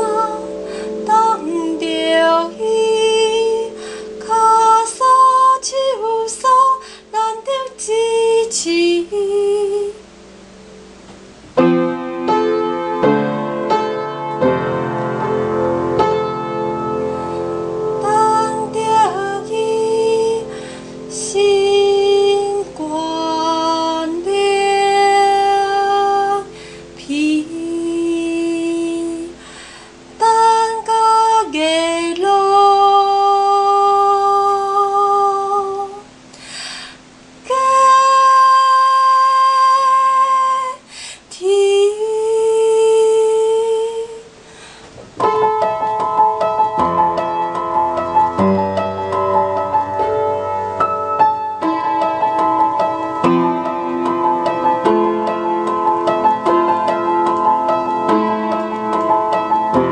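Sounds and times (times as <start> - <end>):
woman singing: 0.0 - 10.1, 18.0 - 29.5, 30.2 - 36.1, 37.4 - 44.4
piano chords: 0.0 - 40.8, 41.7 - 59.9.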